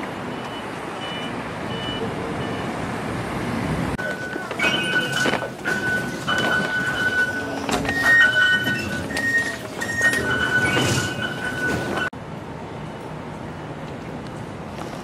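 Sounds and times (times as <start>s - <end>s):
street ambience: 0.0s - 15.0s
busy station hum: 2.0s - 15.0s
fare gate electronic beeps: 4.0s - 12.1s.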